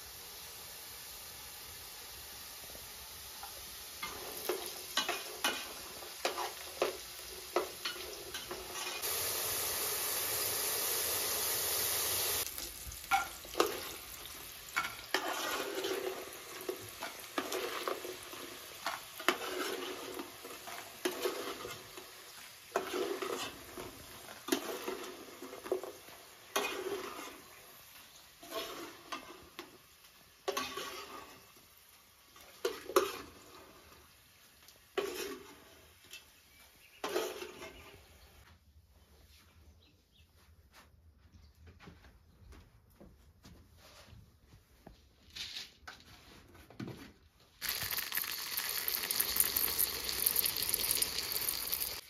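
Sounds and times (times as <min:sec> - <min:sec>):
potatoes frying in oil: 0:00.0 - 0:38.3, 0:47.6 - 0:52.0
spoon scraping metal pot: 0:14.8 - 0:16.2, 0:22.7 - 0:23.6, 0:47.6 - 0:52.0.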